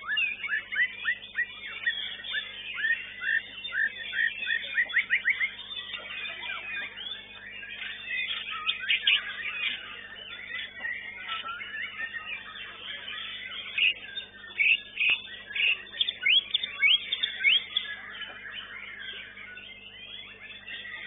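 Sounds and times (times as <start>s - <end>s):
birds chirping and whistling: 0.0s - 21.0s.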